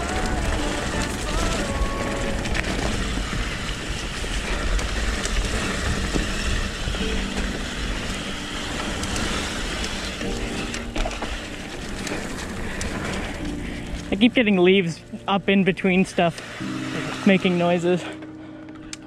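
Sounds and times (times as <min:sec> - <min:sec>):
wind rushing over microphone: 0:00.0 - 0:14.2
bike tyre noise on dirt: 0:00.0 - 0:19.0.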